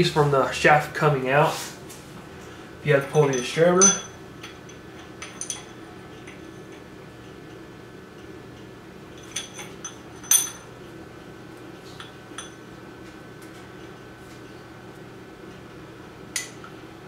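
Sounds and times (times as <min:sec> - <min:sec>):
faint steady hum: 0:00.0 - 0:17.0
light metallic clinks: 0:03.1 - 0:06.8, 0:09.2 - 0:10.7, 0:11.9 - 0:12.6.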